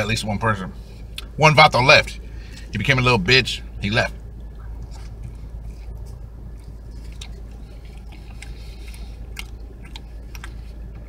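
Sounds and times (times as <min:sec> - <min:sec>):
steady low hum: 0:00.0 - 0:11.0
chewing food: 0:04.1 - 0:11.0.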